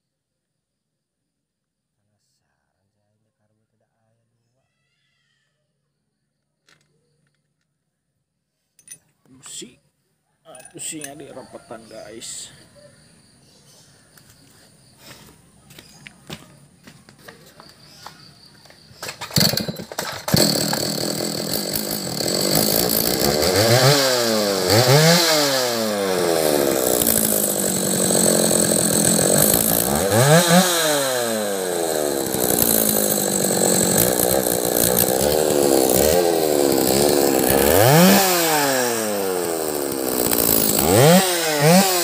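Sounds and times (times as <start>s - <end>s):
chainsaw engine revving: 19.0s - 42.0s
chainsaw pull-start: 19.0s - 42.0s.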